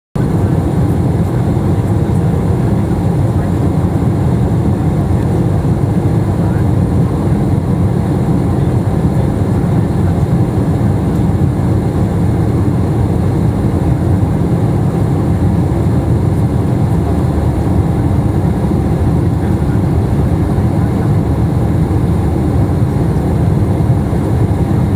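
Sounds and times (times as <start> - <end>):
airplane cabin engine rumble: 0.2 - 24.9.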